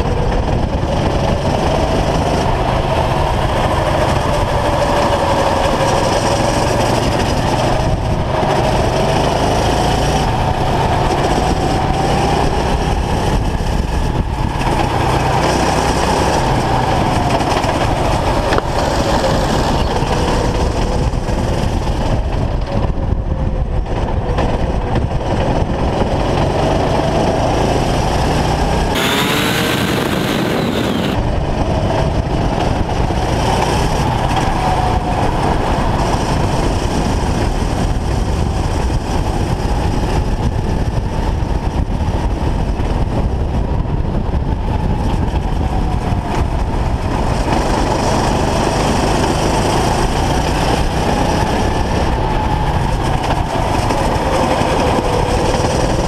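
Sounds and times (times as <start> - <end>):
kart engine running hard: 0.0 - 56.0
microphone rumble: 28.9 - 49.2.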